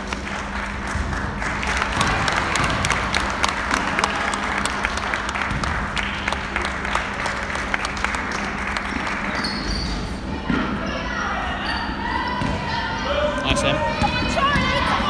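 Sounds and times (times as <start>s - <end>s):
spectators clapping: 0.0s - 10.2s.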